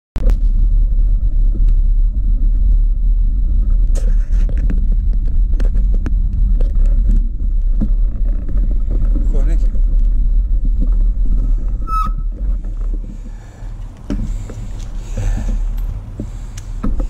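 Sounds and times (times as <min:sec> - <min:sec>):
wind rumble on microphone: 0:00.2 - 0:17.0
bicycle clicks and rattles: 0:04.0 - 0:17.0.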